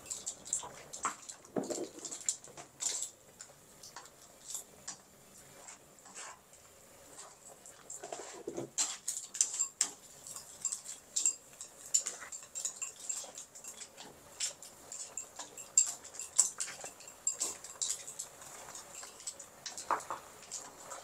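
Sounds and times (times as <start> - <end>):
food sizzling: 0.0 - 21.0
spatula clinking and scraping pan: 8.0 - 21.0.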